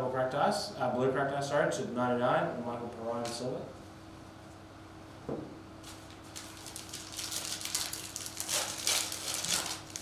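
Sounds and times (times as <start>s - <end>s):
foil wrapper crinkling and tearing: 5.8s - 10.0s.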